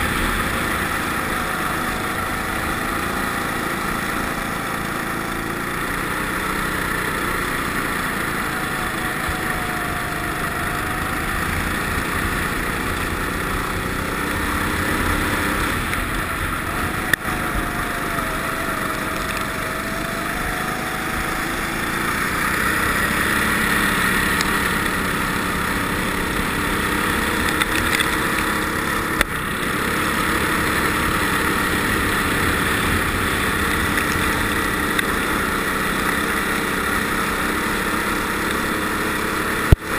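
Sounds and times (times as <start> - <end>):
kart engine running: 0.0 - 39.9.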